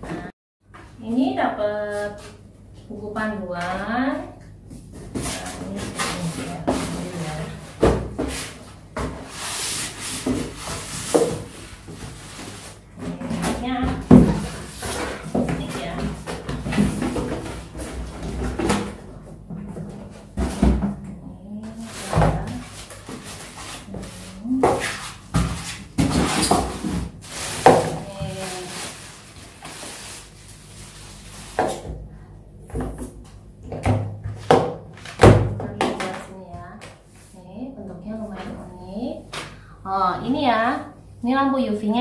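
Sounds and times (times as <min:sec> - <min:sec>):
cardboard and styrofoam scraping rustling: 0:05.0 - 0:19.0, 0:21.7 - 0:31.8
styrofoam blocks rubbing: 0:21.8 - 0:31.6
plastic bag rustling: 0:26.2 - 0:31.7.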